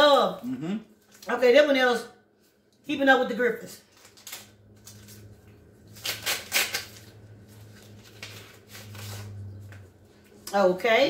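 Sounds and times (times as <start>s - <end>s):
steady low hum: 2.1s - 11.0s
paper rustling and tearing: 3.9s - 9.5s.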